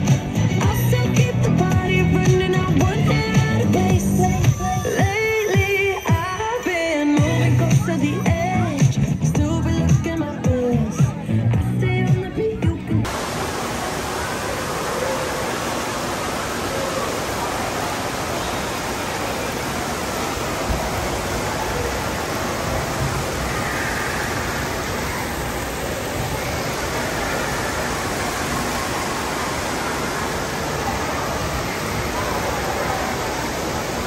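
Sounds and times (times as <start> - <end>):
crowd noise: 0.0 - 34.0
faint voices of swimmers: 0.0 - 34.0
rush of moving water: 13.0 - 34.0.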